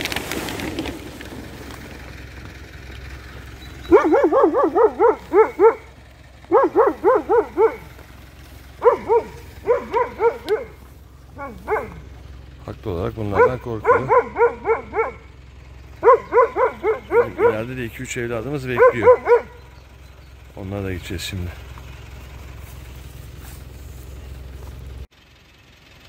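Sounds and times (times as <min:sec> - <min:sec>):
dog barking: 0:03.8 - 0:08.0, 0:08.7 - 0:12.2, 0:13.3 - 0:15.3, 0:16.0 - 0:17.7, 0:18.7 - 0:19.7.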